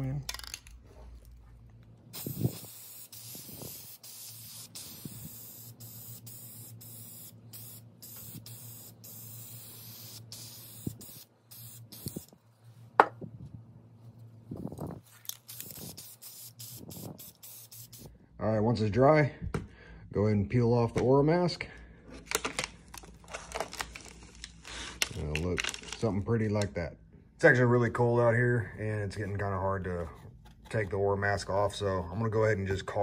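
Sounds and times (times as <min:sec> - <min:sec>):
aerosol spray can hissing: 0:02.1 - 0:12.4, 0:15.3 - 0:18.1.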